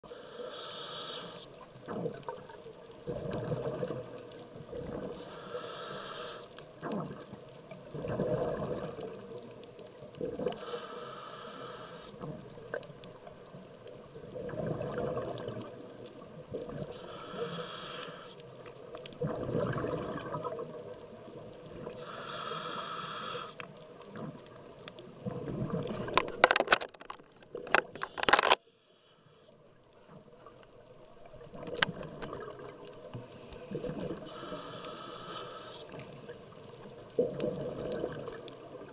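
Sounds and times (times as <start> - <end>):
diver breathing through regulator: 0.1 - 1.6, 5.2 - 6.6, 10.5 - 12.3, 16.9 - 18.4, 22.0 - 23.7, 33.5 - 36.0.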